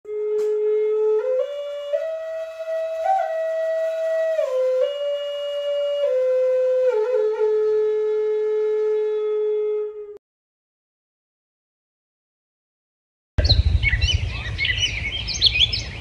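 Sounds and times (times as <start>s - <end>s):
solo flute melody: 0.1s - 10.2s.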